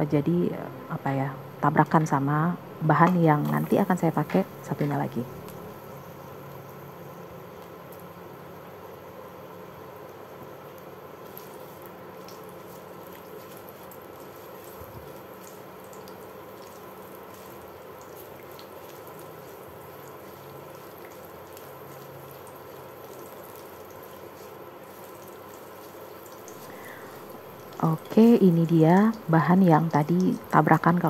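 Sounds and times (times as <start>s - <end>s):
garlic sizzling in oil: 1.7s - 31.0s
spatula stirring in wok: 12.5s - 29.2s.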